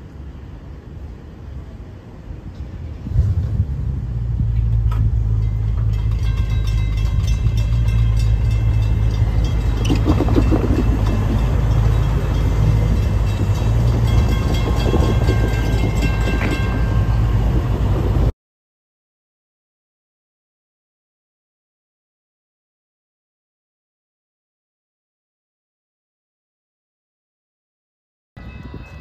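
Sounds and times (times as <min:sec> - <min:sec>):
low steady rumble: 0:02.8 - 0:18.3
railroad crossing bell ringing: 0:05.3 - 0:18.3, 0:28.4 - 0:29.0.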